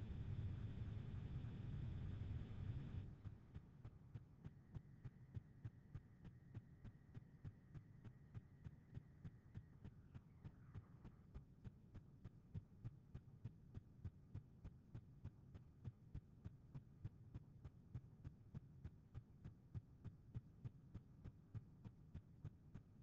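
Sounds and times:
faint low hum: 0:00.0 - 0:03.8.

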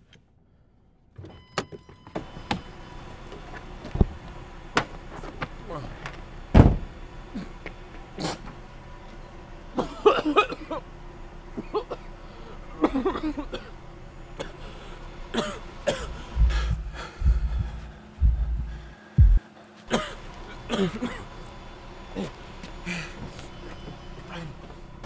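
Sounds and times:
man coughing and groaning: 0:09.8 - 0:10.8, 0:12.8 - 0:13.7, 0:15.4 - 0:17.8, 0:19.9 - 0:21.3
deep low thumps: 0:16.0 - 0:19.4.

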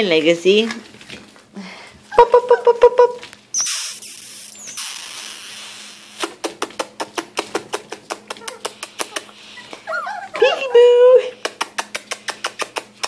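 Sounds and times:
burst of hiss: 0:03.6 - 0:06.3
puppies yipping: 0:07.7 - 0:10.9.

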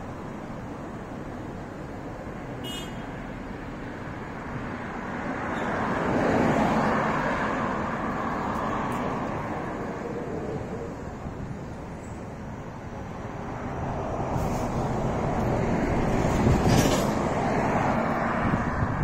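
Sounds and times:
road traffic noise: 0:00.0 - 0:19.0
vehicle passing close by: 0:13.3 - 0:19.0.

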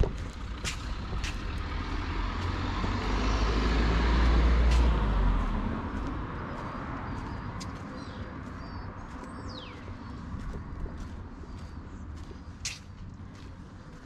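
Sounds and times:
vehicle driving past: 0:00.2 - 0:08.6.

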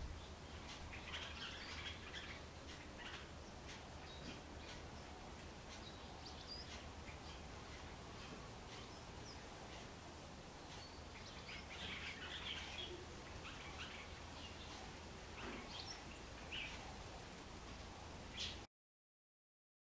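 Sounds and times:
low background rumble: 0:00.0 - 0:18.6
bird chirps and calls: 0:00.1 - 0:09.9, 0:10.5 - 0:17.2, 0:18.3 - 0:18.7.

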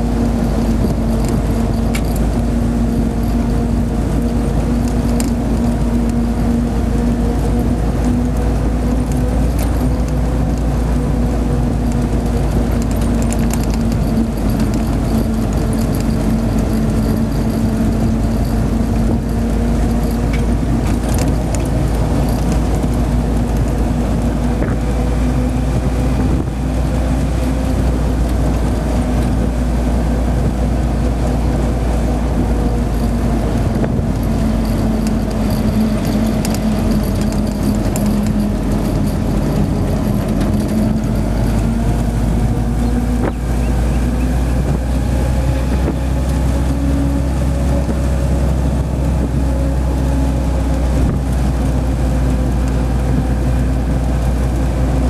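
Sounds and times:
light rattles: 0:00.0 - 0:54.8
jeep engine droning: 0:00.0 - 0:55.0.

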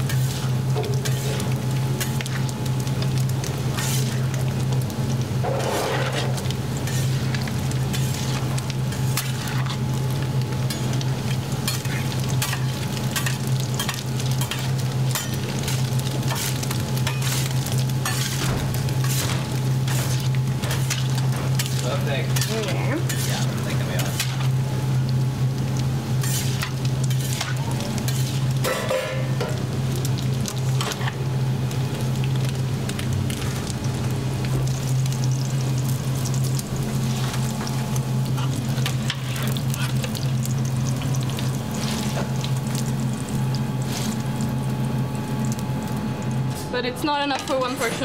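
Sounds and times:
meatballs sizzling in fat: 0:00.0 - 0:47.8
wire basket scraping steel pan: 0:03.8 - 0:04.2, 0:05.4 - 0:09.8, 0:26.2 - 0:29.2.

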